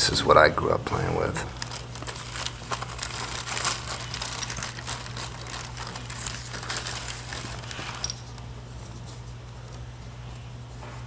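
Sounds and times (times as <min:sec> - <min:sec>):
plastic bag crinkling: 0:01.4 - 0:08.5.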